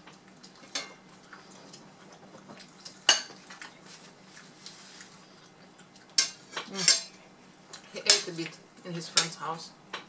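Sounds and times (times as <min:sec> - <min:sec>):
cutlery clinking on plates: 0:06.2 - 0:07.2.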